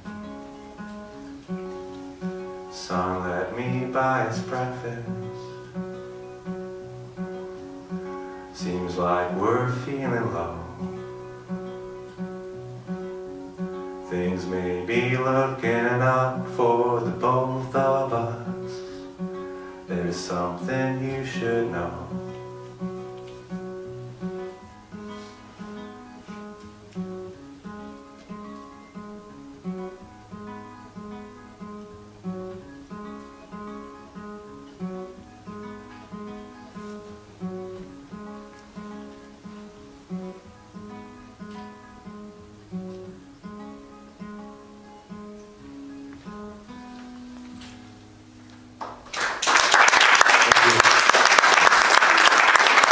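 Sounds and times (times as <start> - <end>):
acoustic guitar picking: 0.0 - 49.1
audience applause: 48.8 - 52.9.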